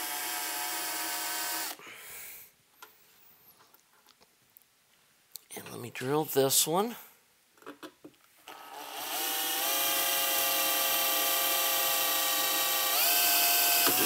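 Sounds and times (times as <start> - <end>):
electric drill whining: 0.0 - 1.8, 8.5 - 14.0.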